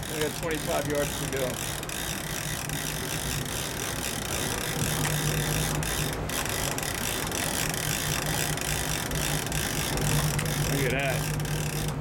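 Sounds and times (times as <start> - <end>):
boat engine humming: 0.0 - 12.0
fishing reel gears clicking: 0.0 - 12.0.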